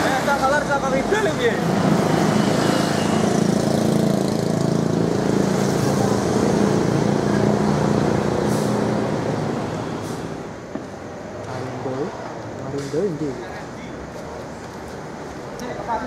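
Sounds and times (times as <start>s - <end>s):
bus diesel engine running: 0.0s - 12.0s.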